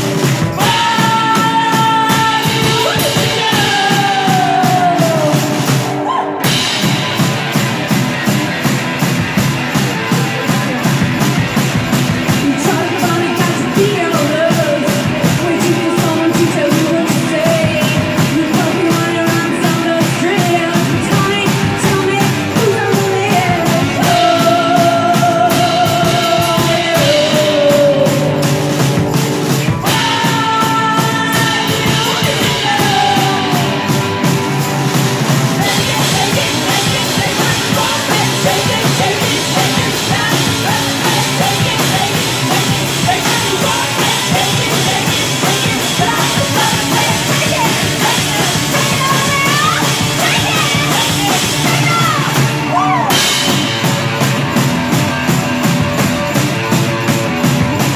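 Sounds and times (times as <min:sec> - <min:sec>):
drum kit: 0:00.0 - 0:57.9
electric guitar: 0:00.0 - 0:57.9
woman singing: 0:00.5 - 0:06.6, 0:12.3 - 0:29.0, 0:29.6 - 0:34.1, 0:35.6 - 0:53.4.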